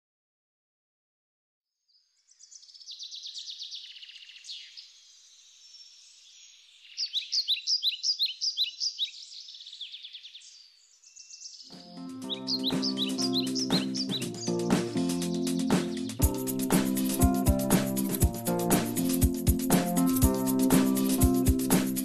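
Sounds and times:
birds trilling and chirping: 0:06.4 - 0:16.2.

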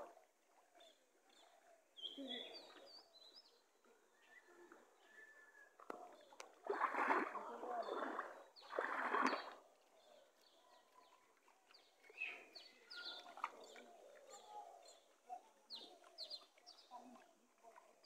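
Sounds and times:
small birds chirping: 0:00.7 - 0:05.3, 0:07.7 - 0:18.0
water splashing: 0:05.8 - 0:15.2.

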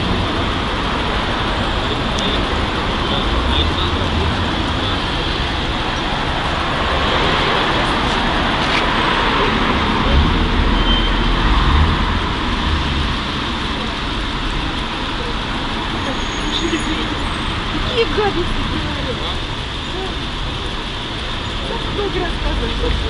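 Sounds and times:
low rumbling: 0:00.0 - 0:15.9
cars passing on street: 0:00.0 - 0:23.0.

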